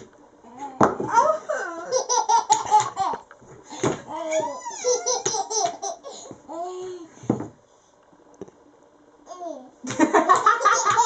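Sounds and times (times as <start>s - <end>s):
laughter: 9.8s - 11.0s.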